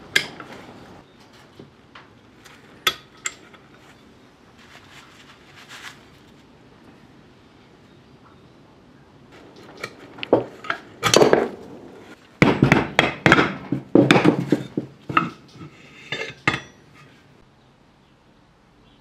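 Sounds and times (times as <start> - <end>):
metal parts clinking and scraping: 14.6 - 17.2.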